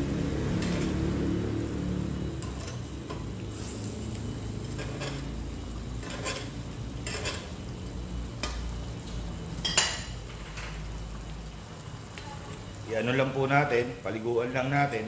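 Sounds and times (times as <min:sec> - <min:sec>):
sauce simmering: 0:00.0 - 0:14.8
utensil clanking on skillet: 0:02.3 - 0:03.4, 0:04.6 - 0:07.6, 0:09.6 - 0:10.8
metal utensil scraping a skillet: 0:04.6 - 0:05.4, 0:06.0 - 0:07.6.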